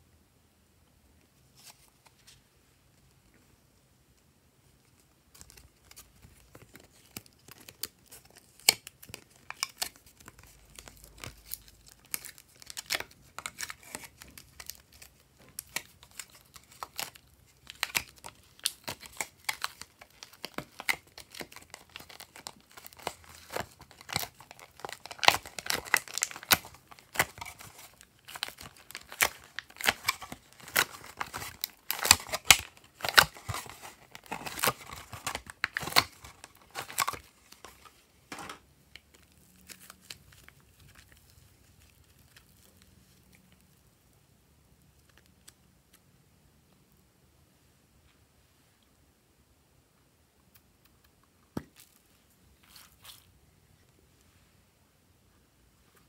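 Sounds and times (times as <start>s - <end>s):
plastic blister tray crinkling: 5.3s - 43.4s.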